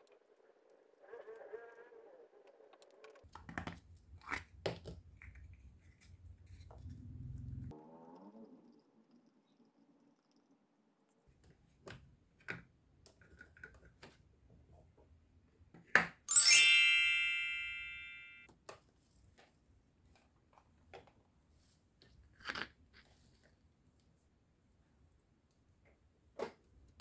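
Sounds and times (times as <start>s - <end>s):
bright bell ding: 16.3s - 18.4s.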